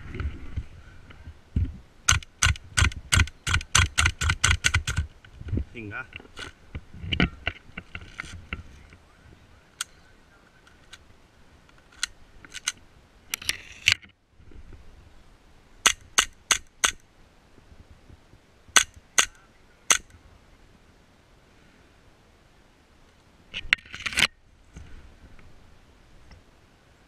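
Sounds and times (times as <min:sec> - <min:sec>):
airsoft pistol snaps: 0:15.8 - 0:17.0.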